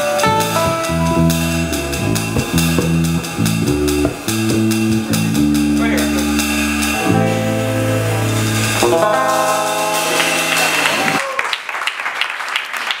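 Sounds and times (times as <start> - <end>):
rock band playing chords: 0.0 - 11.2
audience clapping: 10.0 - 13.0.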